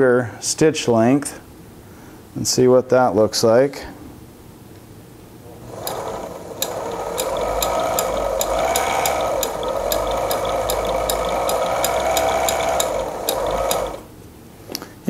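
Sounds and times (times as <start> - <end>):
sewing machine motor whine: 5.5 - 14.1
sewing needle ticking: 5.6 - 14.1.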